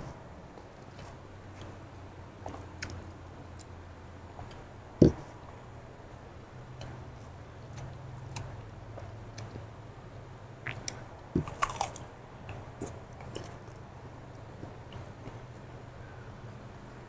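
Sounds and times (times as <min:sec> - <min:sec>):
person chewing crunchy vegetables: 0:10.6 - 0:13.9.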